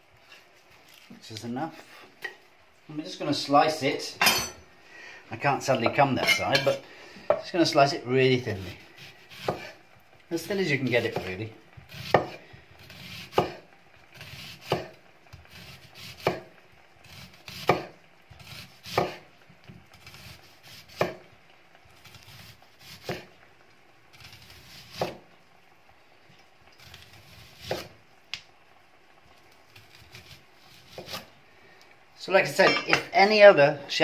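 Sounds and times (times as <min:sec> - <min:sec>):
knife slicing onion: 0:08.4 - 0:21.3, 0:21.9 - 0:23.4, 0:24.1 - 0:25.3, 0:26.8 - 0:28.0, 0:29.7 - 0:31.3.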